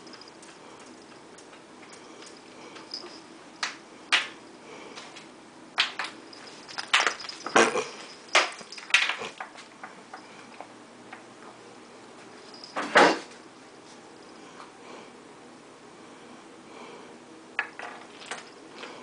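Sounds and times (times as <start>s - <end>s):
ice cube clattering on floor: 17.6s - 18.6s.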